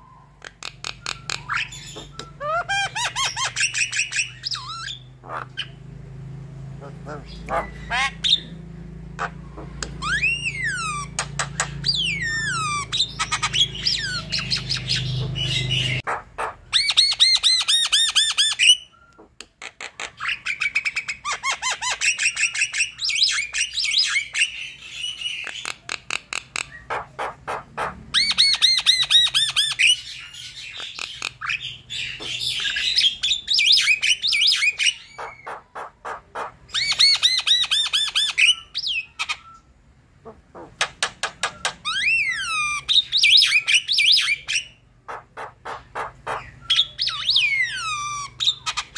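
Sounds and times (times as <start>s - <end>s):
bird singing chattering song: 0.0s - 48.9s.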